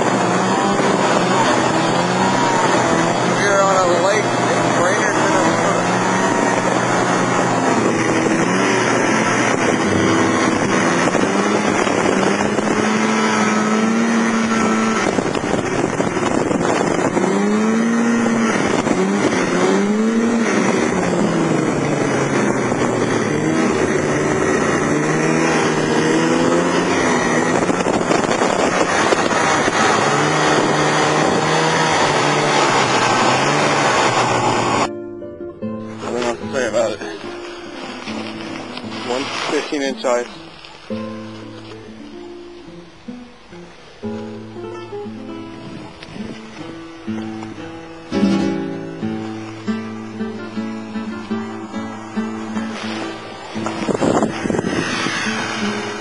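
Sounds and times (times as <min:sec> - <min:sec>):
snowmobile engine revving: 0:00.0 - 0:34.9, 0:36.0 - 0:40.6, 0:47.2 - 0:56.0
steady rushing noise: 0:00.0 - 0:56.0.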